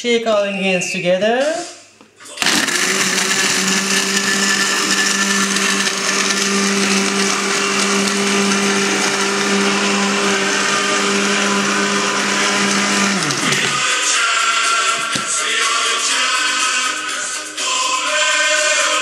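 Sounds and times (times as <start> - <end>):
blender motor blending ice: 2.4 - 13.9.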